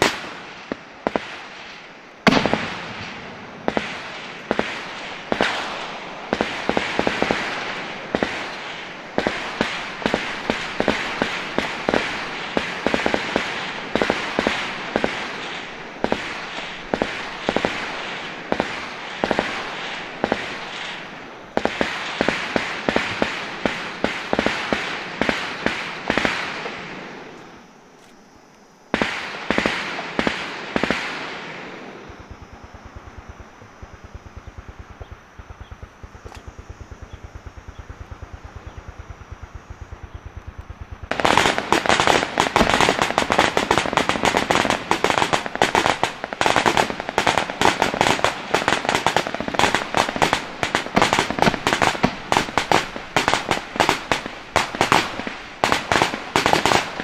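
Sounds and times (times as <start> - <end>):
gunfire bursts: 0.0 - 27.3, 28.9 - 57.0
gunshot echoes: 0.0 - 27.3.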